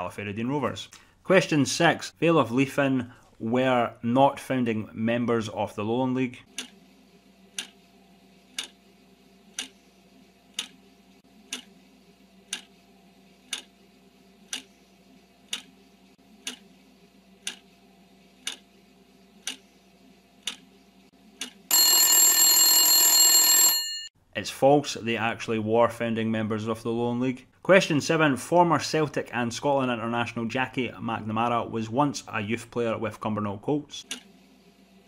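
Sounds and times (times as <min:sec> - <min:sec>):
clock ticking: 0:07.6 - 0:07.8, 0:08.6 - 0:08.8, 0:09.5 - 0:09.7, 0:10.5 - 0:10.8, 0:11.5 - 0:11.7, 0:12.5 - 0:12.7, 0:13.5 - 0:13.7, 0:14.5 - 0:14.7, 0:15.5 - 0:15.7, 0:16.4 - 0:16.6, 0:17.4 - 0:17.6, 0:18.4 - 0:18.6, 0:19.4 - 0:19.6, 0:20.4 - 0:20.6
ringing alarm bell: 0:21.7 - 0:24.1.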